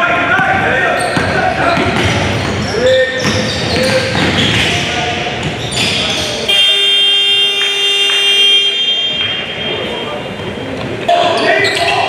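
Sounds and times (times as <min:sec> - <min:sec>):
basketball dribbling: 0:00.3 - 0:06.3
scoreboard horn blast: 0:06.5 - 0:09.5.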